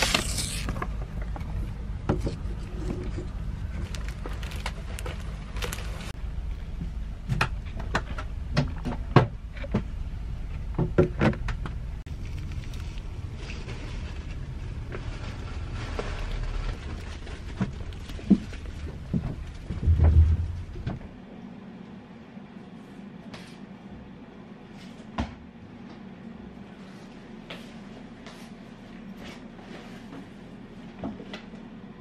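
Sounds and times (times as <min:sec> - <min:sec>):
vehicle cabin rumble: 0:00.8 - 0:21.2
plastic wrapper crinkling: 0:03.8 - 0:06.1, 0:12.1 - 0:18.9.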